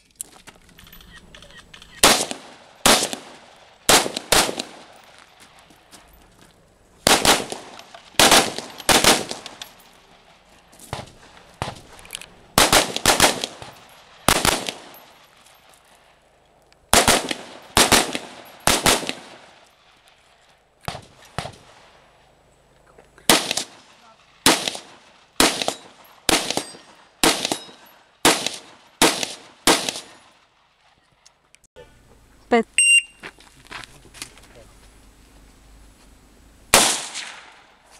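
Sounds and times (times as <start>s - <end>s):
rifle shots: 1.8s - 5.0s, 7.0s - 11.9s, 12.6s - 15.2s, 16.9s - 19.6s, 23.3s - 30.5s, 36.7s - 37.8s.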